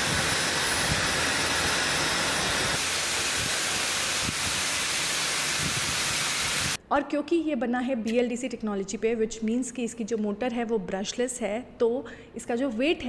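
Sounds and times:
hair dryer blowing: 0:00.0 - 0:06.8.

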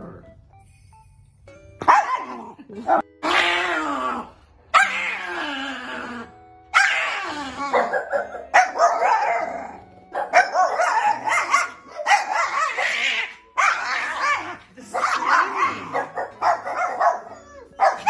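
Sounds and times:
small dog howling and yelping: 0:03.2 - 0:09.8, 0:15.2 - 0:18.0.

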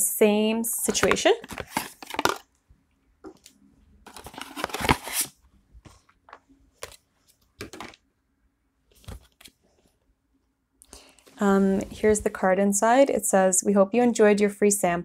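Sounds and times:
packaging rustles and scrapes: 0:01.4 - 0:02.4, 0:04.0 - 0:05.4
cardboard box tearing: 0:04.1 - 0:05.3.

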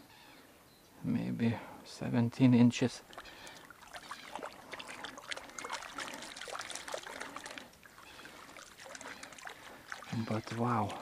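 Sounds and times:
stream water trickling and splashing: 0:02.7 - 0:11.0.

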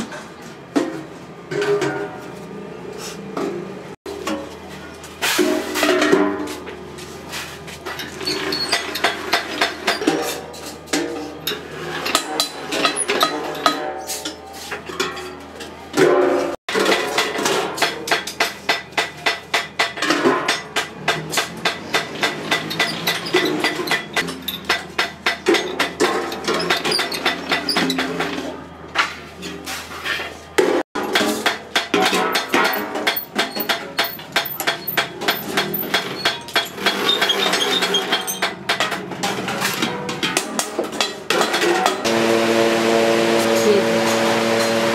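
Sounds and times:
metallic taps and clanks: 0:16.9 - 0:28.5, 0:31.0 - 0:42.0.

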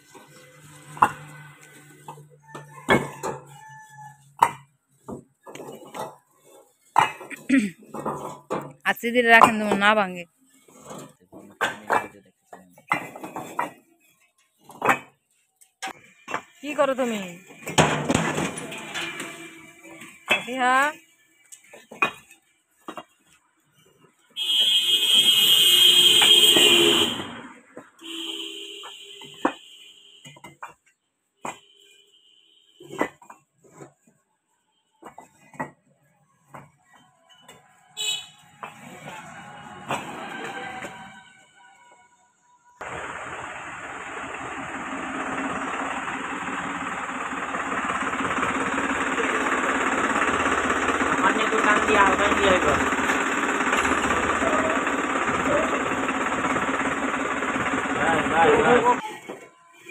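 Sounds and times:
shrill alarm tone: 0:39.1 - 0:42.2
tractor engine running: 0:42.8 - 0:59.1.

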